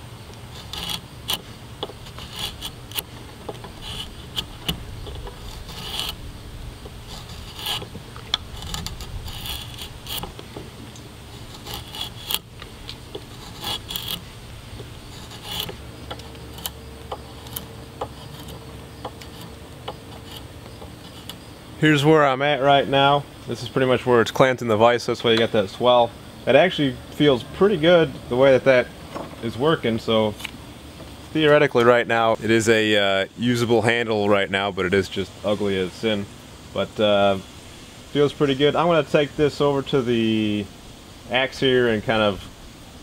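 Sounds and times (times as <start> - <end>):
draw knife scraping wood: 0.3 - 21.6.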